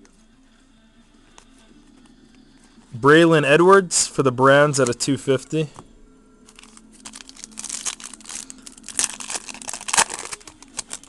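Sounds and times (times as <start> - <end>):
foil wrapper crinkling and tearing: 6.5 - 11.0.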